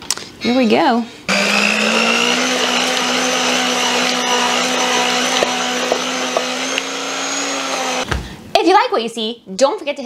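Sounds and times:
electric hand mixer whine: 1.3 - 8.1.

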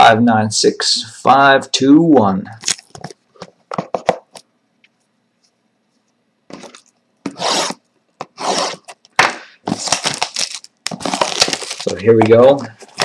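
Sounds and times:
hands scraping shrink-wrapped box: 9.7 - 13.0.

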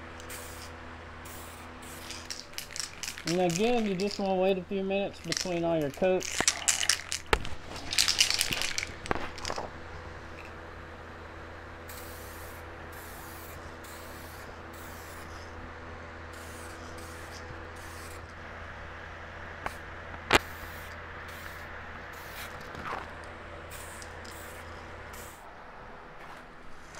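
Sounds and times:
fan humming: 0.0 - 26.9
aerosol can spraying bursts: 0.2 - 0.7, 1.3 - 4.3, 11.9 - 15.4, 16.4 - 18.2, 20.4 - 22.7, 23.7 - 25.4
rustling and rattling: 1.9 - 4.4, 5.2 - 10.6.

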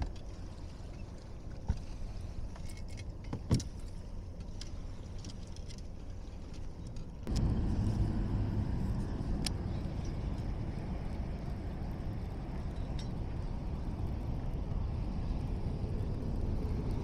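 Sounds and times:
steady low rumble: 0.0 - 17.0
fishing gear clicking and knocking: 2.5 - 7.4.

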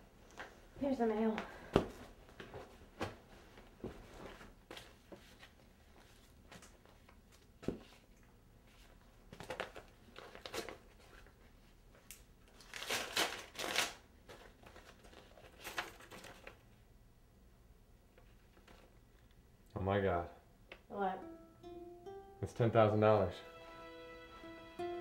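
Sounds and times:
paper crinkling rustles: 2.3 - 16.8
envelope tearing: 12.6 - 16.4.

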